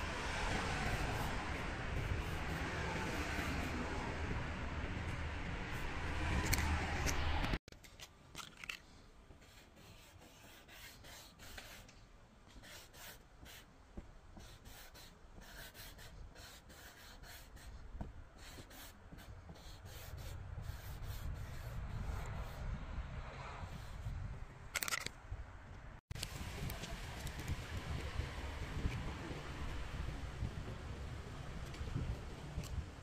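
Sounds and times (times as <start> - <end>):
marker rubbing on cardboard: 9.4 - 11.9, 12.5 - 13.7, 14.4 - 22.7.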